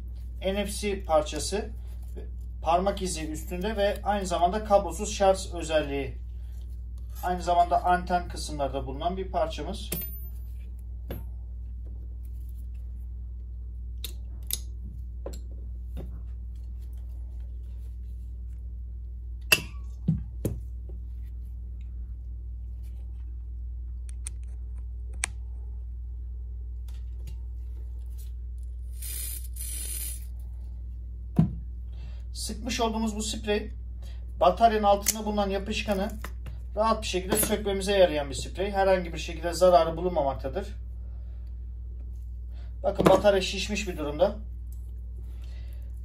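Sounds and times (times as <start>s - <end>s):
steady low hum: 0.0s - 46.0s
aerosol spray can hissing: 28.9s - 30.3s.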